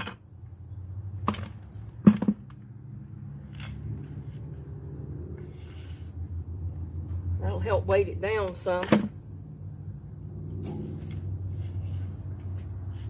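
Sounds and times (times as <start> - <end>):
plastic buckets knocking: 1.2 - 2.6.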